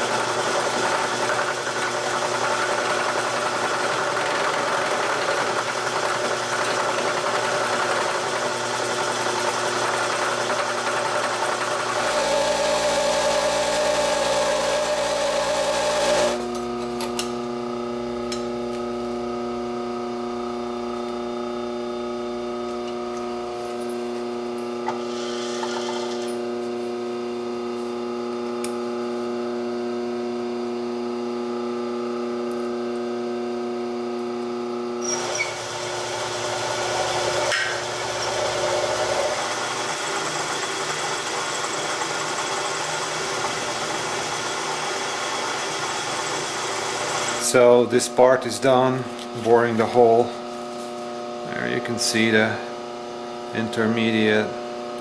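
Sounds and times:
milling machine cutting metal: 0.0s - 16.6s, 24.8s - 26.4s, 35.0s - 47.8s
machine hum: 0.0s - 55.0s.

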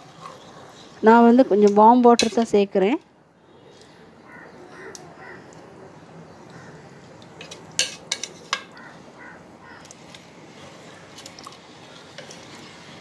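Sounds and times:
spatula stirring rice in pot: 9.9s - 13.0s.

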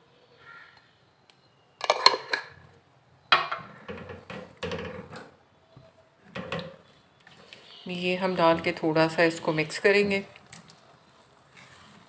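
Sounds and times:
utensils clattering: 1.8s - 2.6s
spatula scraping a wok: 11.1s - 12.0s.

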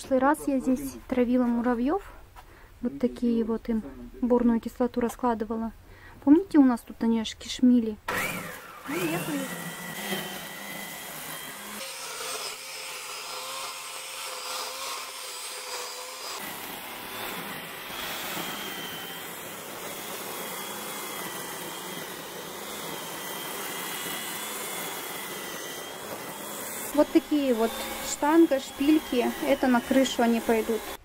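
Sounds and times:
string trimmer whining: 8.1s - 31.0s.

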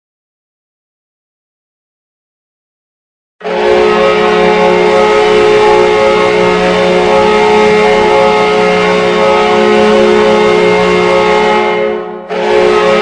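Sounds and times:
arena goal horn blast: 3.4s - 13.0s.

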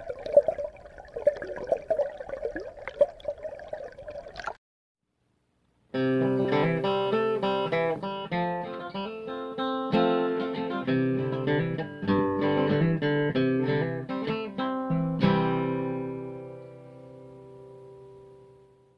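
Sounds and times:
acoustic guitar picked notes: 5.9s - 18.8s.

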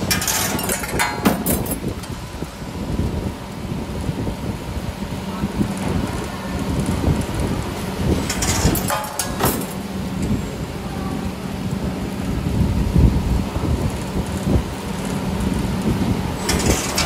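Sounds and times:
wire-bending machine humming: 0.0s - 17.0s.

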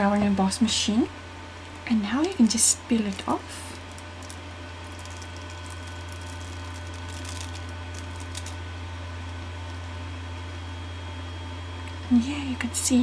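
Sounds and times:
low electrical hum: 0.0s - 13.0s
foil and cardstock crinkling: 2.0s - 8.6s.

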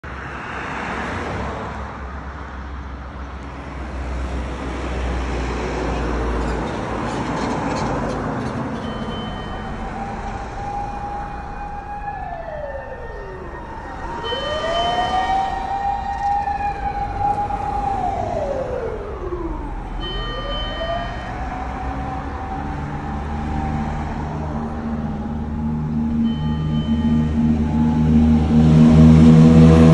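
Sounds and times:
low engine rumble: 8.4s - 29.9s
fire engine siren wailing: 8.7s - 29.9s.

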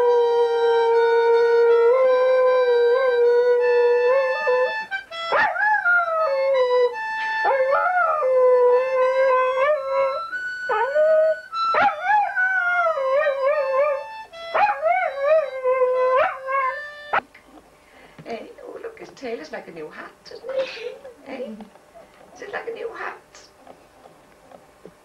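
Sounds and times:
dog howling: 0.0s - 6.8s, 7.4s - 17.1s
flute-like tune: 0.0s - 17.2s.

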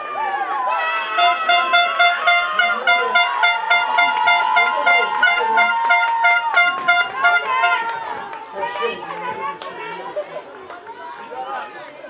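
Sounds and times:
people shouting: 0.0s - 9.1s
horns tooting: 0.6s - 8.2s.

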